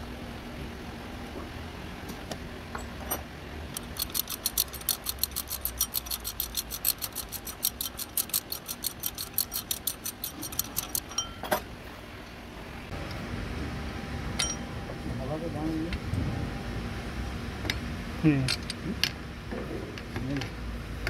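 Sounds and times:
socket ratchet clicking rapidly: 3.7 - 11.2.

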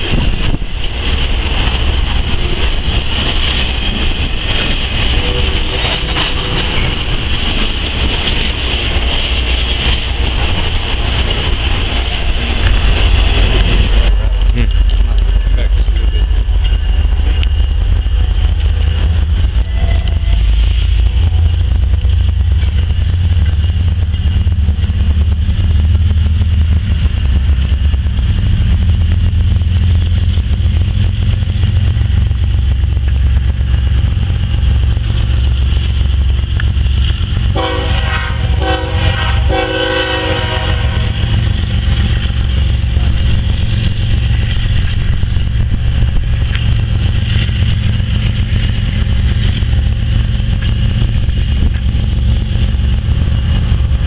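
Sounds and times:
diesel locomotives rumbling: 0.0 - 54.0
train air horn blasts: 37.5 - 41.1.

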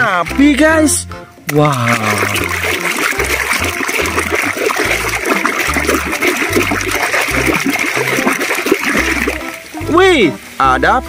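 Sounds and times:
soapy water sloshing in tub: 1.5 - 9.9.

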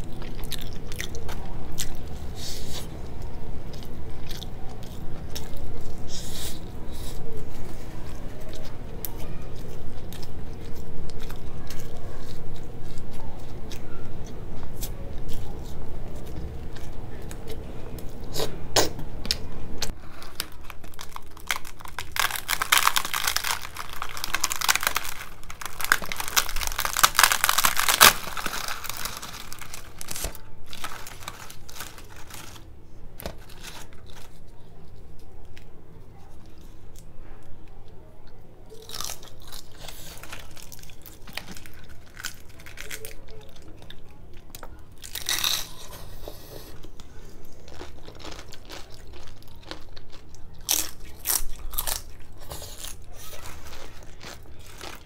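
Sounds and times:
close chewing: 0.0 - 32.7, 37.7 - 55.0
crisp fried bread tearing: 20.1 - 34.5, 38.8 - 43.9, 45.0 - 45.9, 47.7 - 55.0.

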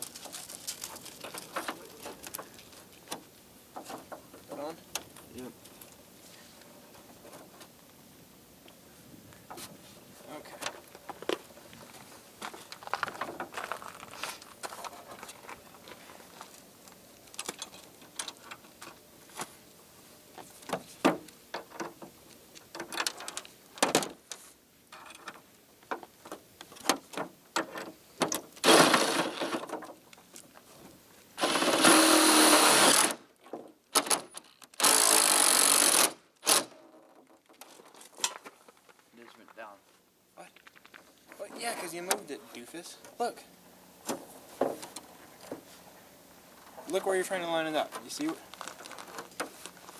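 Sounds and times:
cordless drill running: 31.4 - 33.2, 34.8 - 36.1.

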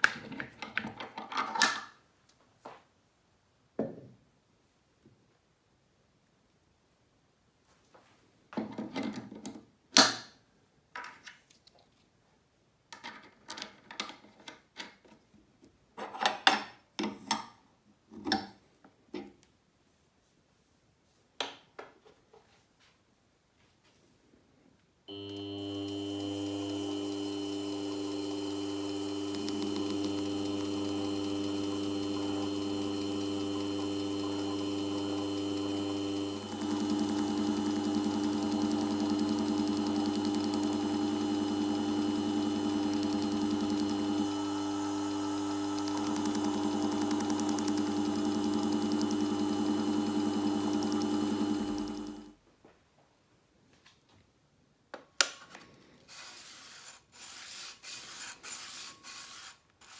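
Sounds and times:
electric bench machine humming: 25.1 - 52.4.

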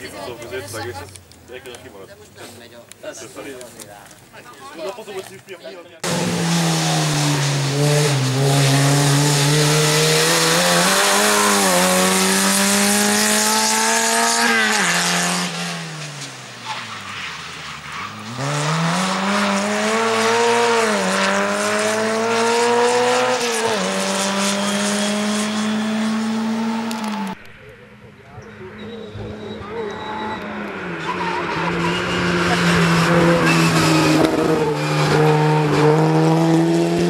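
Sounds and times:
rally car engine revving through gears: 6.0 - 16.4, 18.1 - 27.4, 29.0 - 37.0.

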